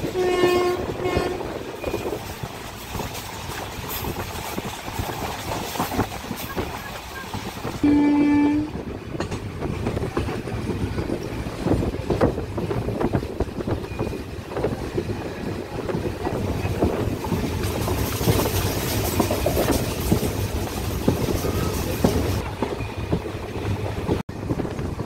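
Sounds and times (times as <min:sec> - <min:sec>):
train rumble: 0:00.0 - 0:25.0
wheels clattering over rails: 0:08.9 - 0:25.0.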